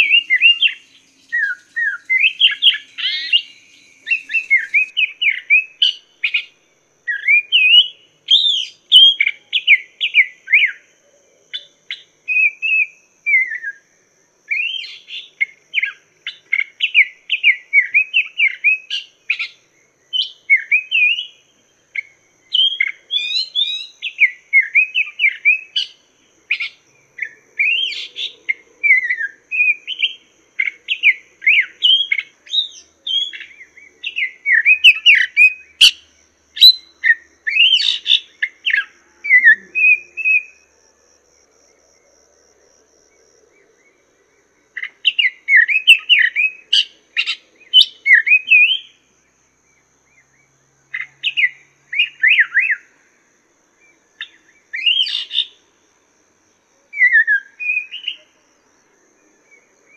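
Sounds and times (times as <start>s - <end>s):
bird singing whistled phrases: 0.0s - 6.5s, 7.1s - 10.8s, 20.2s - 21.4s, 22.5s - 25.8s, 28.8s - 36.0s, 36.6s - 40.6s, 45.1s - 48.9s, 51.3s - 52.8s, 54.2s - 55.5s, 57.0s - 58.3s.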